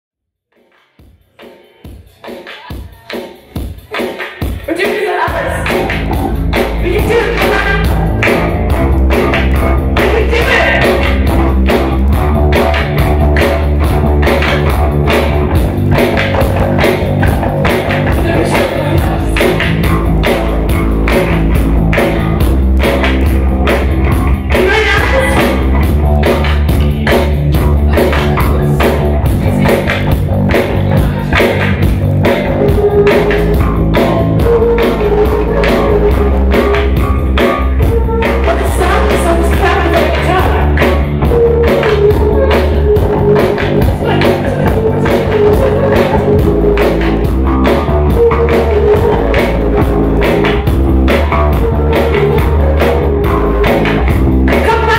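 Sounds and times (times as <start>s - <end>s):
rock band playing: 1.4s - 54.9s
woman singing: 24.5s - 25.5s, 38.0s - 40.7s.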